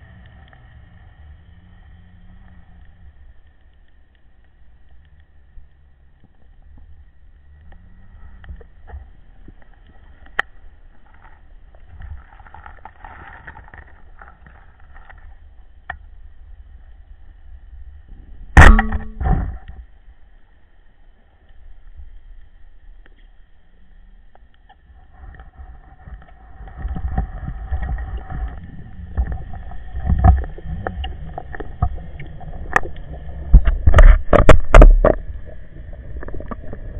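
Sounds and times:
faint clicks and crackles: 0.0 - 36.9
underwater rumble: 0.0 - 36.9
loud thumps: 18.6 - 19.6
underwater clicks: 26.1 - 35.6.

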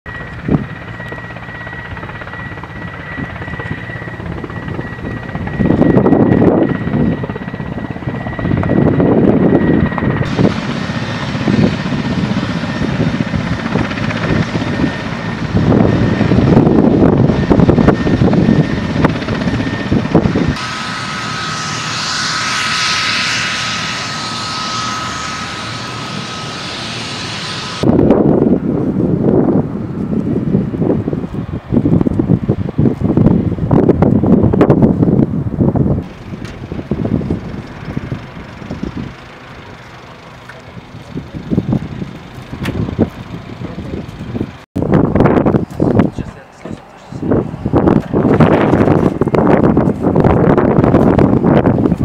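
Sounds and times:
helicopter turbine and rotor: 0.1 - 52.0
high turbine whine: 0.1 - 52.0
gusty rotor wash: 10.1 - 19.2, 19.8 - 46.2, 47.2 - 52.0.

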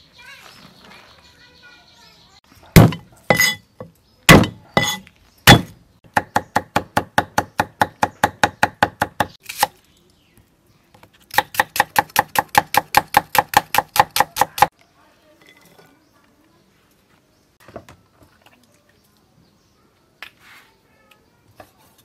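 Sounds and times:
cleaver chopping on wooden board: 2.8 - 3.6, 4.3 - 9.7, 11.3 - 14.7.

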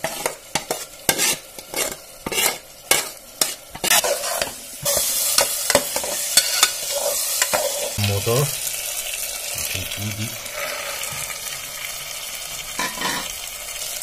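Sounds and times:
metal spatula scraping pot: 0.0 - 8.0, 10.4 - 11.6, 12.8 - 13.4
oil frying sizzle: 0.0 - 14.0.

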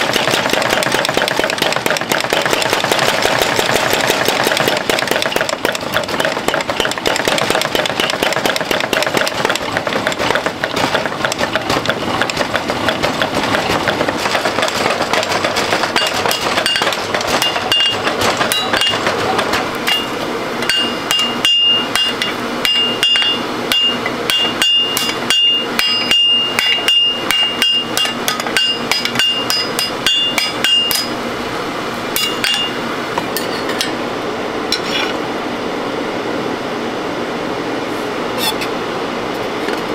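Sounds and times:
power hammer pounding steel: 0.0 - 31.2, 32.2 - 33.9
hand hammer striking anvil: 4.9 - 31.2, 32.2 - 33.9.

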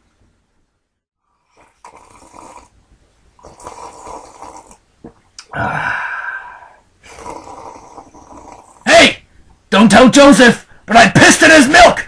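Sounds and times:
person making breathy vocal noises: 5.4 - 8.9.

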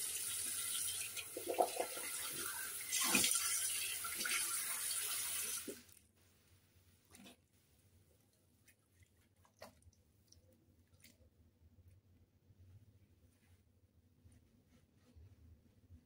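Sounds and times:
tap water running into sink: 0.0 - 5.9.

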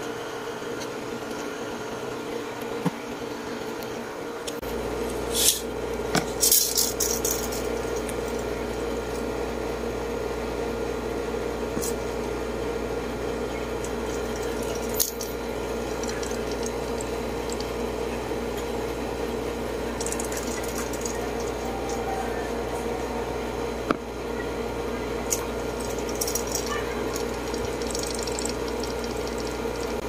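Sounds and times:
steady mechanical hum: 0.0 - 30.0
tape measure clicks and rattles: 6.4 - 8.1.

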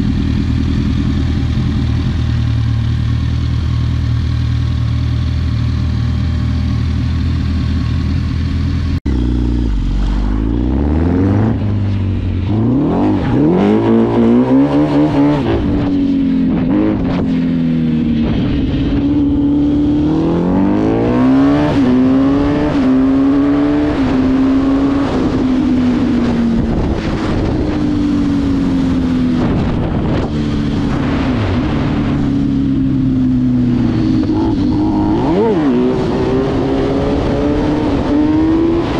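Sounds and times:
quad engine revving: 9.1 - 15.9, 19.0 - 27.7, 33.8 - 38.9.

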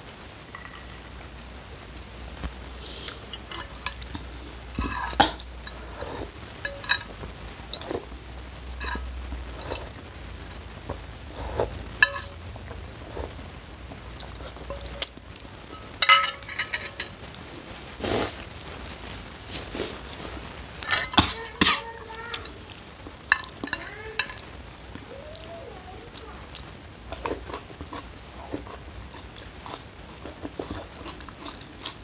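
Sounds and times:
cutlery clinking on ceramic bowl: 12.0 - 12.4, 15.7 - 17.2, 20.8 - 21.9.

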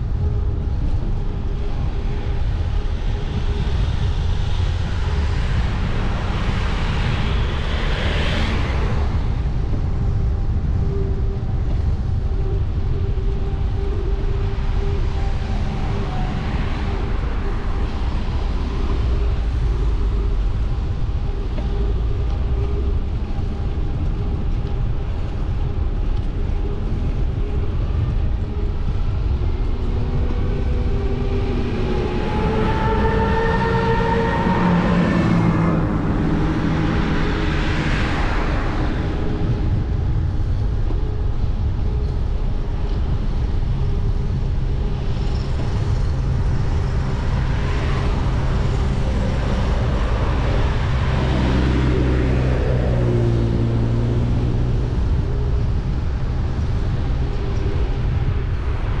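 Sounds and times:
wind and road noise: 0.0 - 59.0
vehicle passing close by: 30.0 - 39.2.

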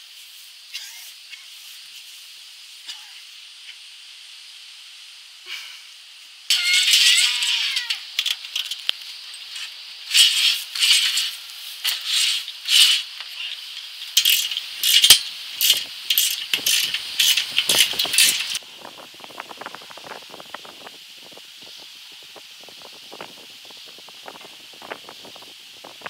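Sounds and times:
metal frame rattling and scraping: 8.1 - 13.2, 14.0 - 18.6
sharp metal clicks: 14.0 - 18.6.

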